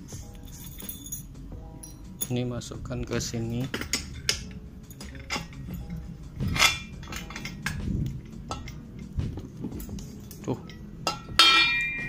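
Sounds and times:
steel rod clanking on metal: 3.5 - 9.2, 9.9 - 12.0.

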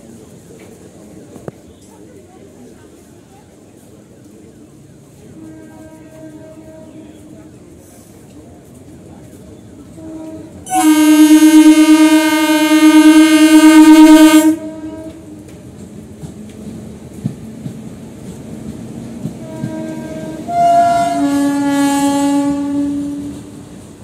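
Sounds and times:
train rumble: 0.0 - 24.0
train horn blast: 5.2 - 7.5, 9.8 - 15.4, 19.4 - 23.6.

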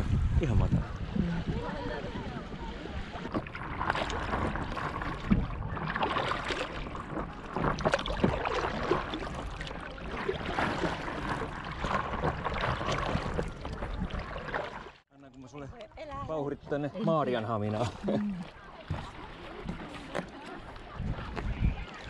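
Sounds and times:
wind rumble on microphone: 0.0 - 8.4, 20.7 - 22.0
paddles splashing in water: 0.0 - 22.0.

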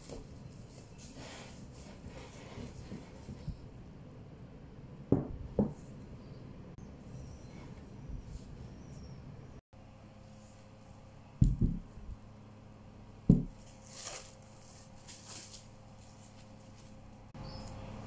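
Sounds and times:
cling film crinkling: 13.6 - 17.3.

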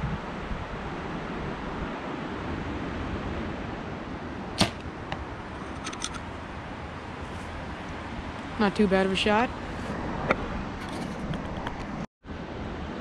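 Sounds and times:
wind on microphone: 0.0 - 13.0
bow string snap: 4.6 - 4.9.

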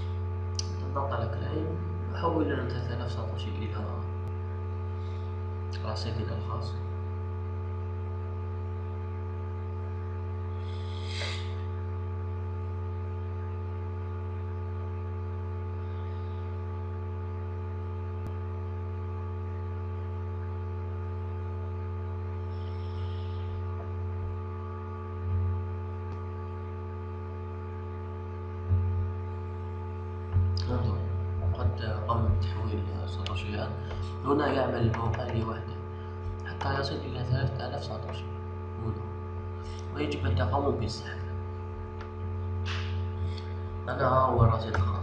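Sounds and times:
electrical hum: 0.0 - 45.0
short breathy noise: 10.6 - 11.8.

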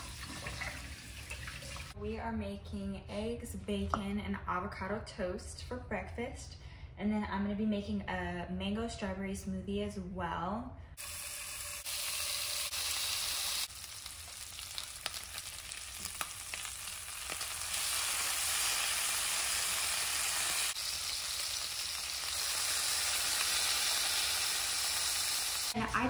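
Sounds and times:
bacon sizzling and crackling: 11.0 - 25.8.

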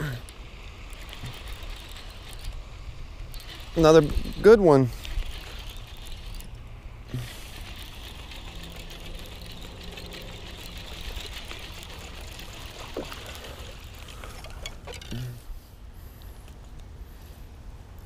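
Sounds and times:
fishing reel cranking: 0.8 - 2.7, 3.3 - 15.2
fish splashing in water: 7.4 - 14.9.

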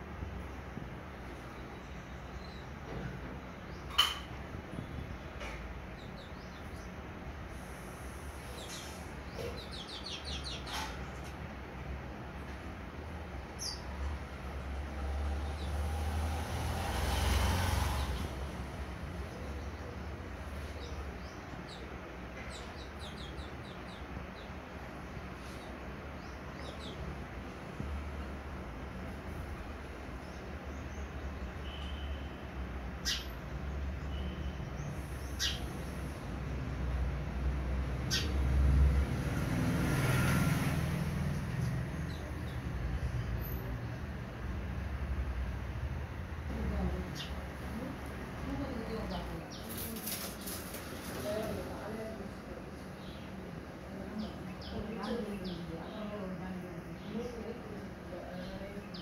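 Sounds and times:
sparrows chirping: 0.2 - 12.1, 13.2 - 44.8, 45.4 - 59.0
low background hum: 40.8 - 59.0.

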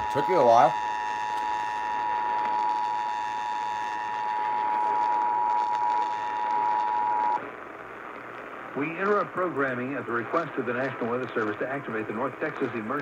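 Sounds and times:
radio hiss: 0.0 - 13.0.

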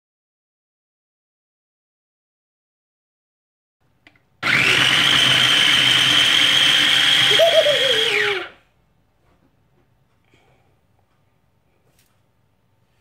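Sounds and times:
food chopper motor whine: 4.4 - 8.6.

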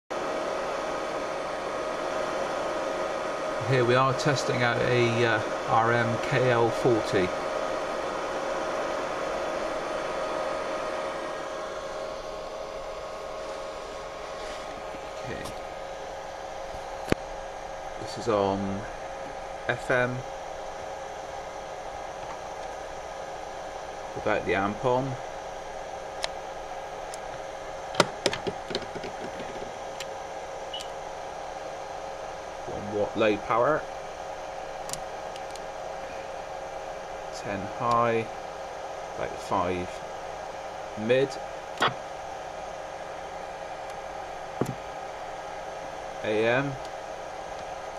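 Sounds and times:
faint even whine: 0.1 - 47.9
steady hiss: 0.2 - 47.9
sharp clicks and knocks: 28.0 - 30.1.

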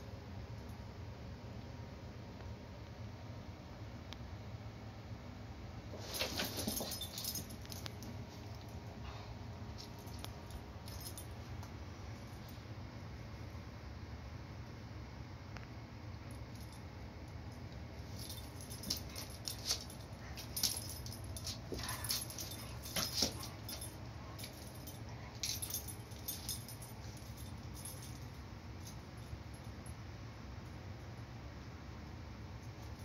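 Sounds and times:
steady low hum: 0.0 - 33.0
harness jingles and clicks: 6.0 - 8.8, 9.8 - 11.6, 18.0 - 29.7.

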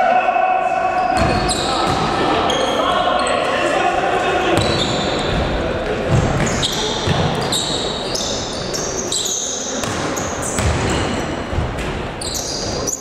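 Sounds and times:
sneakers squeaking on gym floor: 1.0 - 3.5, 4.6 - 13.0
basketball bouncing: 6.1 - 7.4, 9.8 - 12.1.

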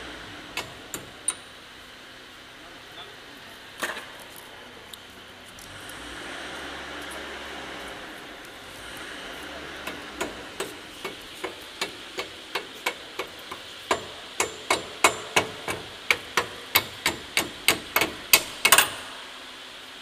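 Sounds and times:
hammer striking metal: 9.9 - 19.2.

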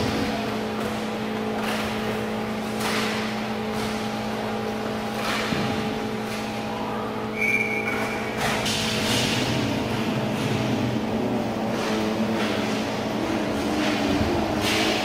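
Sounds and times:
hockey sticks and puck knocking: 0.0 - 6.6, 7.8 - 10.7
steady rink hum: 0.0 - 15.0.

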